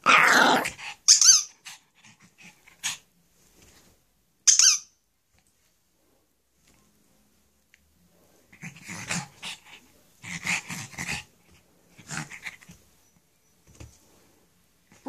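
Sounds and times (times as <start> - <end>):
dog growling: 0.0 - 1.0.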